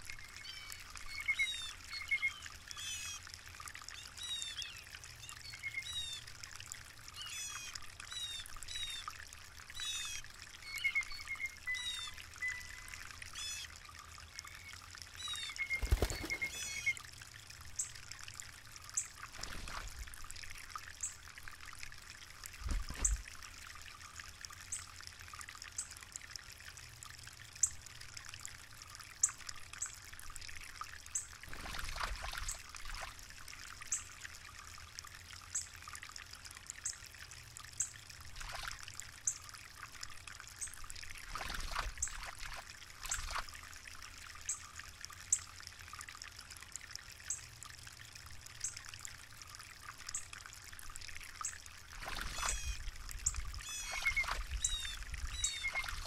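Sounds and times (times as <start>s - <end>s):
bird splashing in water: 15.4s - 17.0s, 19.2s - 20.4s, 31.5s - 33.2s, 41.2s - 43.5s, 52.0s - 52.8s.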